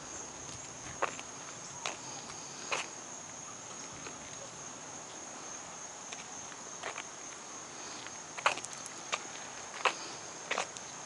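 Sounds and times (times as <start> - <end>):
footsteps on dirt: 0.0 - 3.0, 6.1 - 7.1, 8.0 - 10.8
insect chorus: 0.0 - 11.0.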